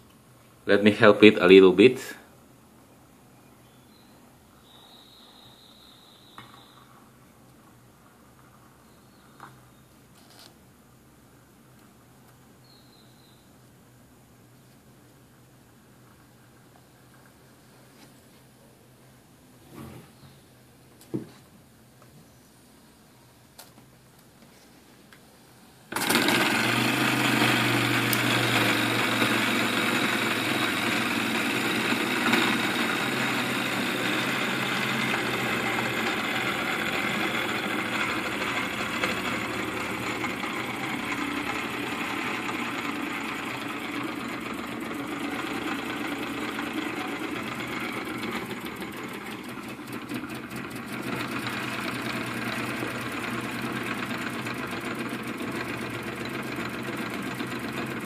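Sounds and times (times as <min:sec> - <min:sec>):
toy steam engine clattering: 0:28.6 - 0:58.0.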